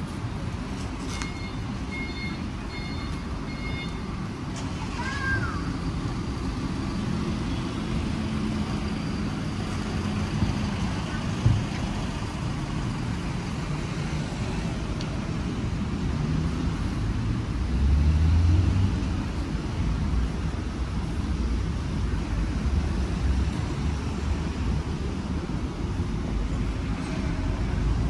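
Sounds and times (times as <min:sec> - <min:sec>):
loud engine rumble: 0:00.0 - 0:28.0
traffic rumble: 0:00.0 - 0:28.0.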